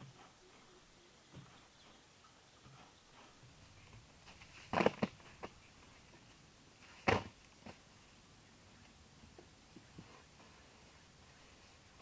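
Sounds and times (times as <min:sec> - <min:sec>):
soil falling into pit: 0:04.2 - 0:05.2.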